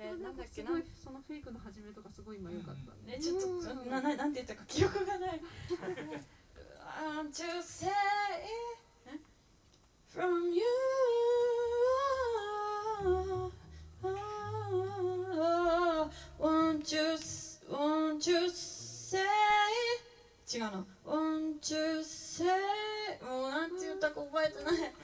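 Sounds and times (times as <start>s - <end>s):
woman singing slow melody: 4.8s - 9.2s, 10.1s - 25.0s
low bass notes: 11.7s - 16.7s.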